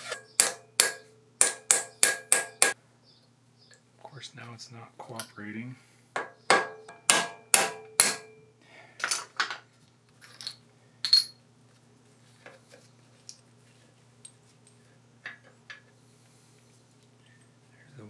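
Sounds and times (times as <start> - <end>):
metal parts clinking on metal: 10.2 - 11.4.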